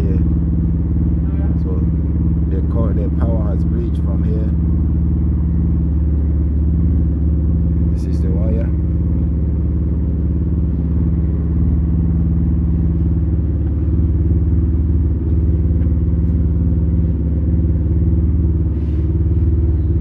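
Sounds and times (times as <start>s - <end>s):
engine running steadily: 0.0s - 20.0s.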